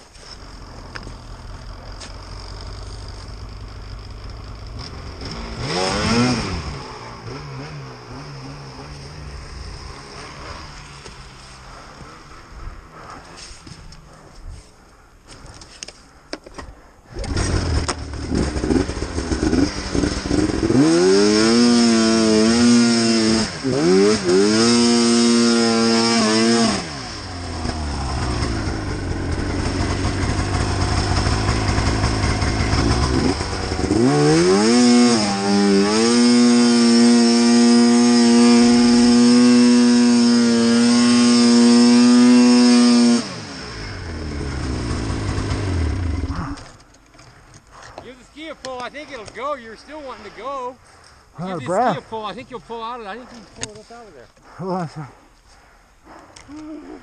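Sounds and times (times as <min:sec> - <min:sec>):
snowmobile engine revving: 0:00.0 - 0:14.3, 0:17.1 - 0:46.7, 0:48.0 - 0:55.2.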